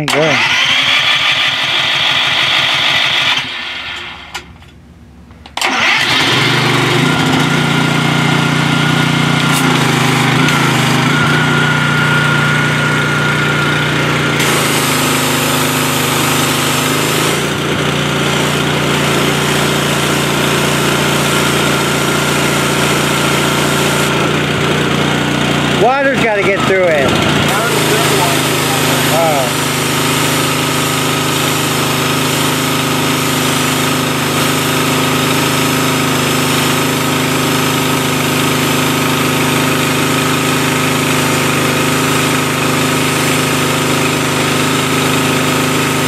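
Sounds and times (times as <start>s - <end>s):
small engine running: 0.0s - 4.4s, 5.6s - 46.0s
spray hissing: 9.4s - 11.6s, 14.4s - 17.6s, 18.3s - 24.4s, 26.0s - 46.0s.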